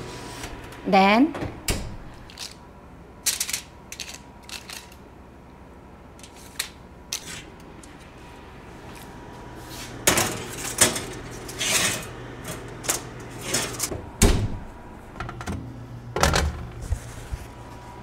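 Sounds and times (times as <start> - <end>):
low steady hum: 0.0 - 18.0
baking trays clattering: 10.0 - 13.9.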